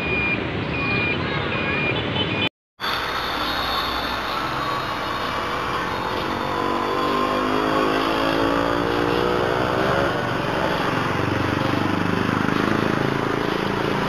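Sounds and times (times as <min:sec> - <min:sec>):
steady traffic: 0:00.0 - 0:14.0
vehicle engine passing by: 0:03.7 - 0:14.0.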